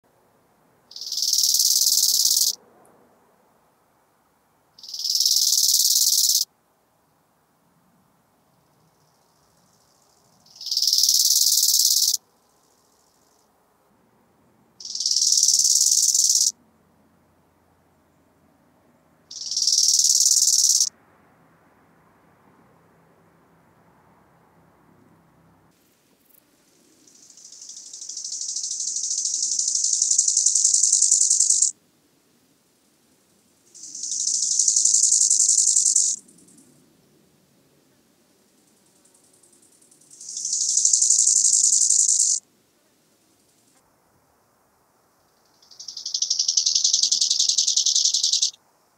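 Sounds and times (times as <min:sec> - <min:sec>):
grasshopper stridulating: 0:00.9 - 0:02.6, 0:04.8 - 0:06.5, 0:08.9 - 0:13.4, 0:14.8 - 0:16.6, 0:19.3 - 0:20.9, 0:25.8 - 0:31.8, 0:33.2 - 0:36.8, 0:38.5 - 0:42.4, 0:45.2 - 0:48.9.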